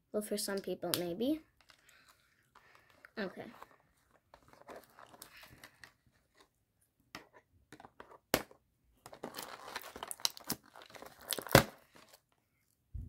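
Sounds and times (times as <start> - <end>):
plastic packaging crinkling: 1.6 - 6.0, 9.0 - 12.3.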